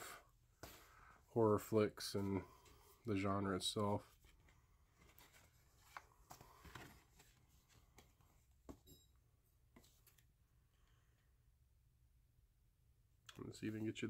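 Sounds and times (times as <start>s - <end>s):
paper and card rustling: 2.2s - 8.4s.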